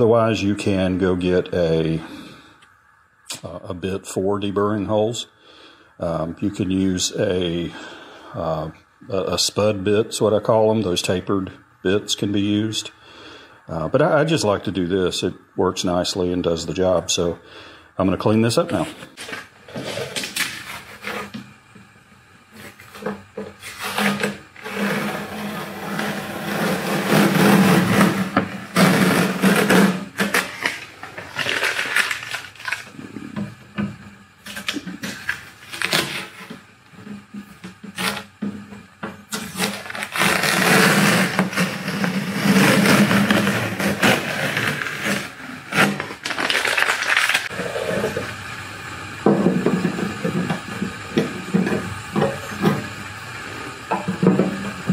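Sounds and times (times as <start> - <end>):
masking tape tearing off: 23.6 - 32.9, 34.5 - 36.5, 39.3 - 47.6.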